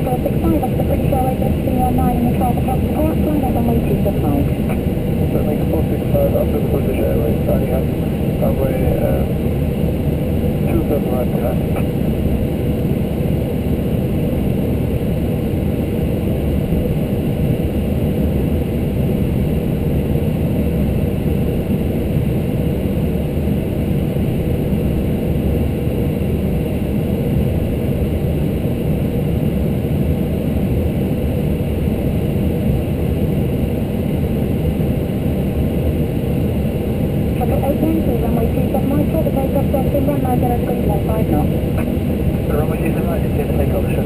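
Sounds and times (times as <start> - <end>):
faint whine: 0.0 - 31.8, 32.6 - 44.0
aircraft engines rumbling: 0.0 - 44.0.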